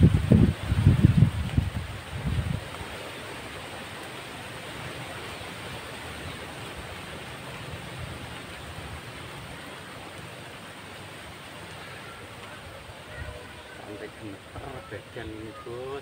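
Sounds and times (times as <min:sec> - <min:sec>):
wind buffeting microphone: 0:00.0 - 0:03.1
wind through foliage: 0:00.0 - 0:16.0.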